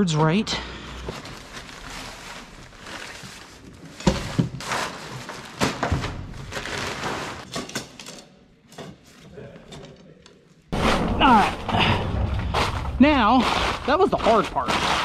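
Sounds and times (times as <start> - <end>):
tent gear rustling: 1.0 - 4.0.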